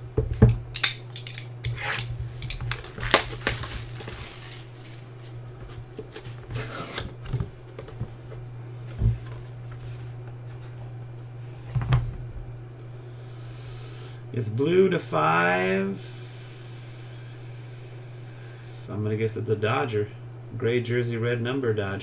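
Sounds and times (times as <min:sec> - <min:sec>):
steady low hum: 0:00.0 - 0:22.0
plastic wrap crinkling: 0:00.8 - 0:05.3.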